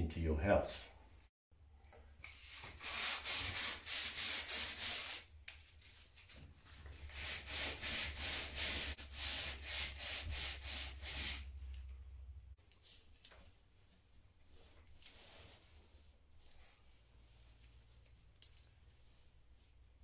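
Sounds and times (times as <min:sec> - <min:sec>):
hand sanding with sandpaper: 0:02.4 - 0:11.6.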